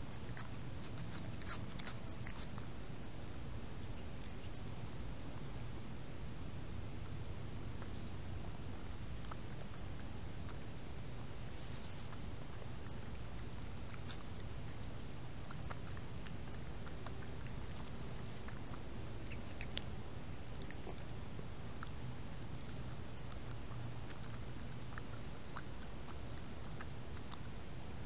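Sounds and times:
crickets trilling: 0.0s - 28.0s
animal foraging clicks: 12.0s - 28.0s.

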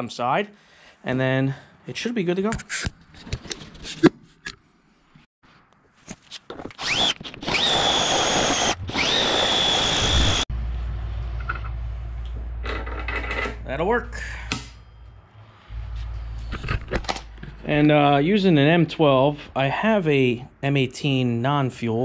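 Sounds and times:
cordless drill boring through steel: 6.8s - 10.5s
steady low hum: 8.8s - 20.8s.

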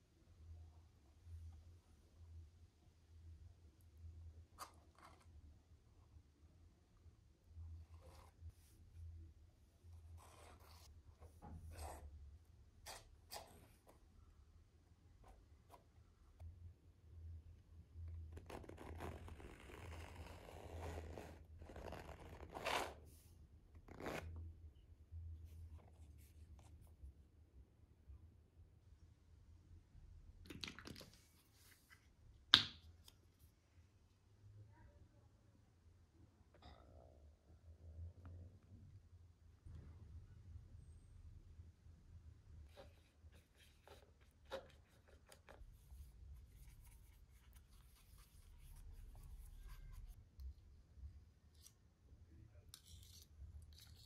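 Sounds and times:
paintbrush scraping and tapping: 42.7s - 50.2s.

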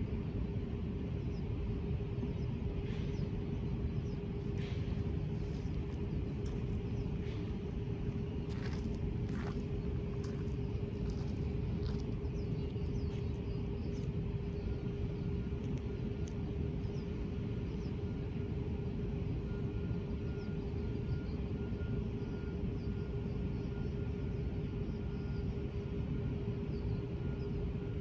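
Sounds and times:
mid-pitched hum: 0.0s - 28.0s
low rumble: 0.6s - 21.4s.

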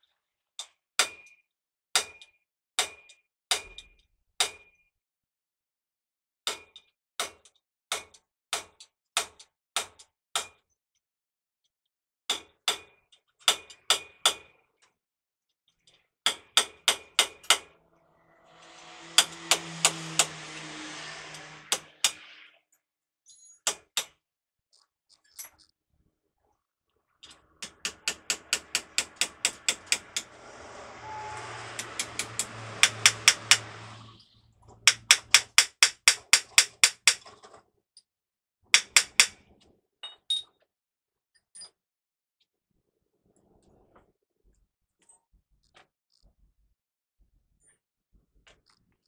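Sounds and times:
hammer striking steel wheel hub: 16.3s - 17.8s, 18.5s - 20.4s, 27.6s - 34.0s, 34.8s - 37.2s, 38.8s - 39.4s
rushing noise with low hum: 17.7s - 22.3s, 27.7s - 35.3s.

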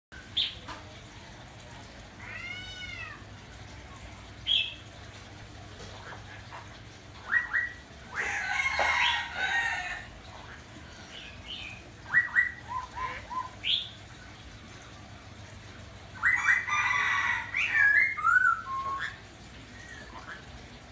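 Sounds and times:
parrot whistles and chirps: 7.2s - 7.8s, 12.1s - 13.6s, 17.6s - 19.2s.

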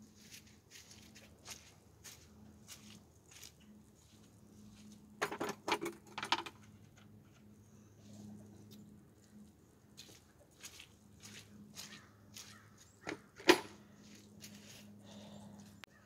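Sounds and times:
rubber buckets rattling and knocking: 5.2s - 6.6s
faint low hum: 6.5s - 12.8s.

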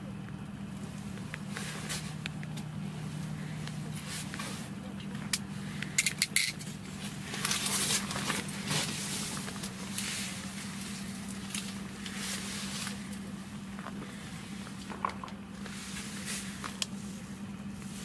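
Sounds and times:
steady low hum: 0.0s - 18.0s
rustling and crinkling of clothing: 0.8s - 5.9s, 6.6s - 18.0s.

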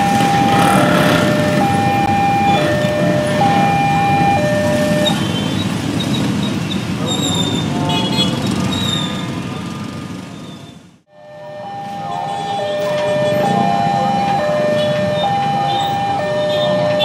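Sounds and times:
motorcycle engines idling: 0.0s - 5.0s
level-crossing alarm: 0.0s - 5.4s, 11.1s - 17.0s
horn toots: 0.4s - 1.8s.

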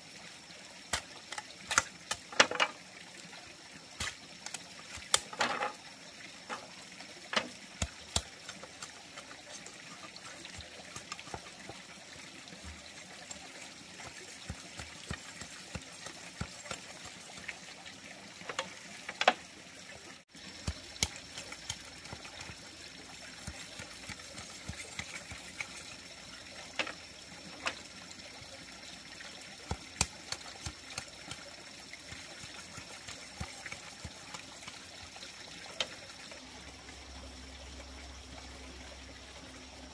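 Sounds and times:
knife splitting bamboo: 0.9s - 2.7s, 4.0s - 5.7s, 7.4s - 11.9s, 20.4s - 26.0s, 29.6s - 34.8s.

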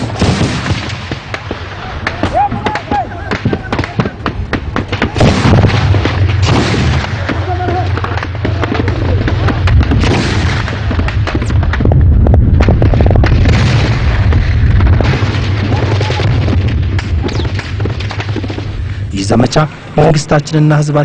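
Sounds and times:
rapid gunfire: 0.0s - 11.8s, 12.6s - 18.8s
low rumble: 4.2s - 20.5s.

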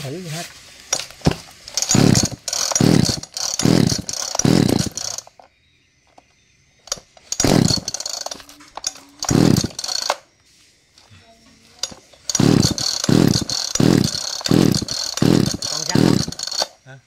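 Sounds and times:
chainsaw recoil starter pulls: 0.9s - 5.5s, 6.9s - 10.2s, 11.8s - 16.8s.

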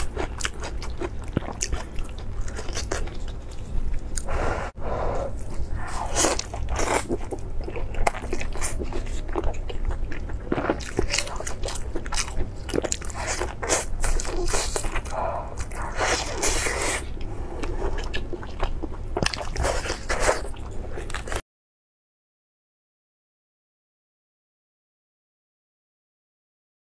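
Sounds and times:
person chewing meat: 0.0s - 21.4s.

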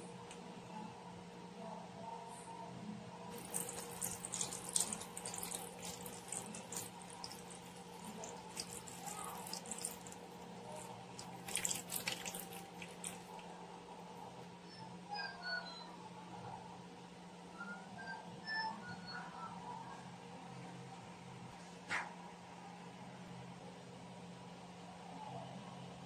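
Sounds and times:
broth pouring and splashing: 3.3s - 13.5s.

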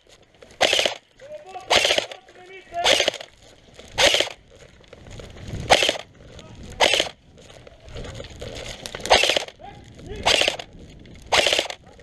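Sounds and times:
airsoft gun full-auto bursts: 0.6s - 3.3s, 4.0s - 4.4s, 5.7s - 6.1s, 6.8s - 7.2s, 9.1s - 9.6s, 10.2s - 10.7s, 11.3s - 11.8s.

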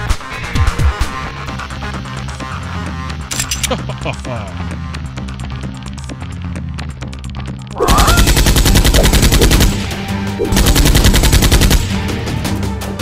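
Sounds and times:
background music: 0.0s - 13.0s
automatic gunfire: 8.0s - 9.8s, 10.4s - 12.0s.

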